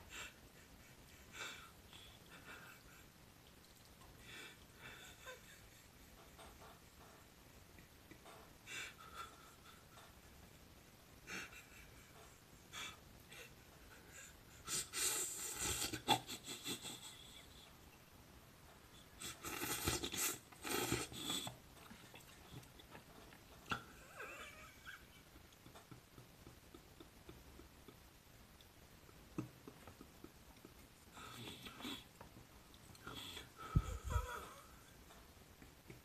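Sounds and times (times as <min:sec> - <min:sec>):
man wheezing laughter: 0:00.0 - 0:03.2, 0:04.3 - 0:06.6, 0:08.2 - 0:10.3, 0:11.2 - 0:17.8, 0:23.7 - 0:28.1, 0:33.1 - 0:36.0.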